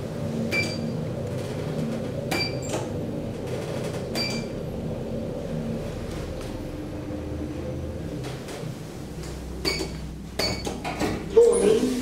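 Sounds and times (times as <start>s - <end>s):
elevator humming: 0.0s - 12.0s
elevator click: 0.5s - 4.6s, 9.3s - 11.2s.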